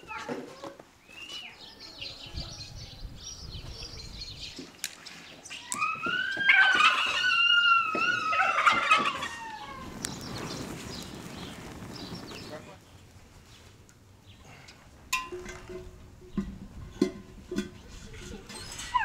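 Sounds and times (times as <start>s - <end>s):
small birds chirping: 1.0s - 14.8s
rooster crowing: 5.8s - 9.9s.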